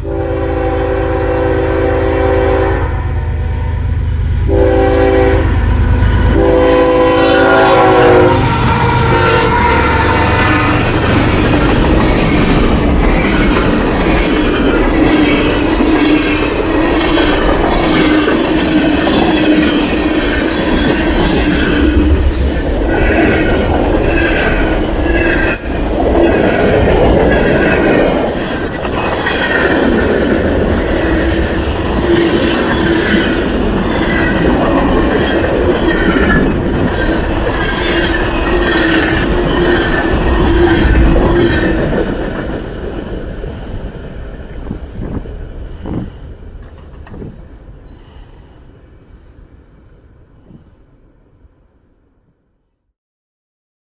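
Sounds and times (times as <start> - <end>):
freight train wheels clattering: 8.4 - 43.2.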